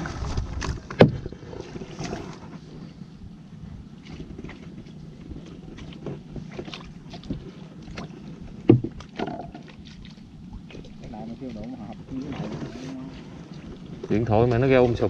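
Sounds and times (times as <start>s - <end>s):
small knocks on boat: 0.2s - 2.5s, 4.1s - 12.7s
water splashes and drips: 5.8s - 14.2s.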